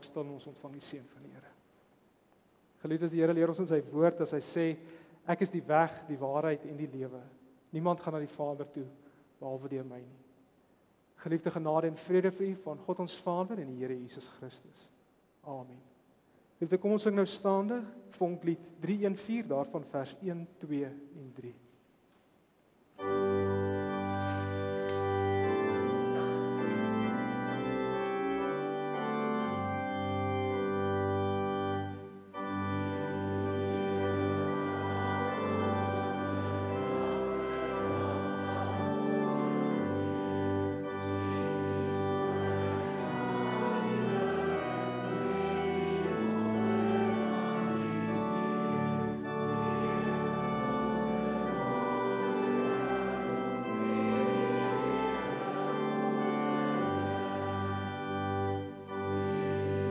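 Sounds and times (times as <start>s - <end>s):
organ playing a hymn: 0.0s - 1.5s, 2.9s - 10.2s, 23.0s - 59.9s.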